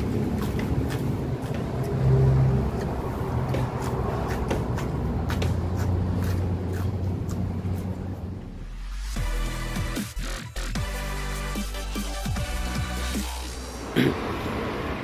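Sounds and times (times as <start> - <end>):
crunchy chewing of lettuce: 0.0 - 8.2
road traffic rumble: 0.0 - 9.8, 12.4 - 15.0.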